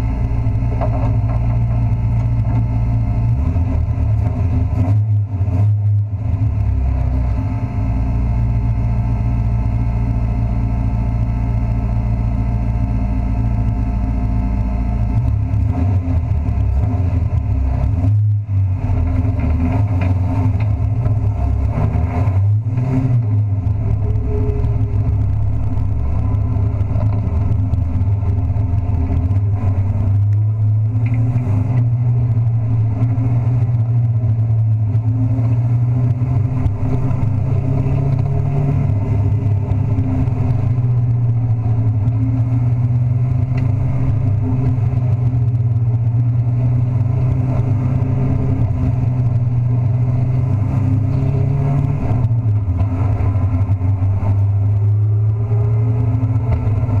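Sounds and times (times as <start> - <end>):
truck engine running hard: 0.0 - 57.0.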